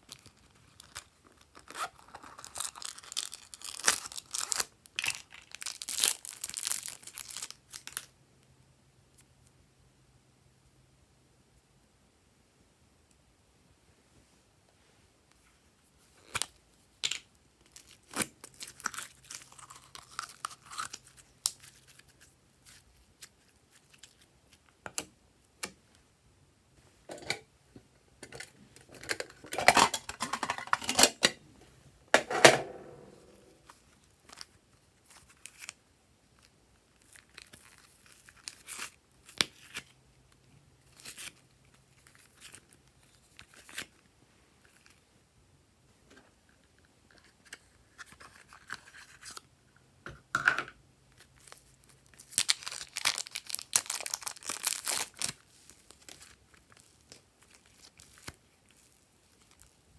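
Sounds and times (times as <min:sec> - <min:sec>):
slime crackling and tearing: 0:00.1 - 0:08.1, 0:51.4 - 0:59.8.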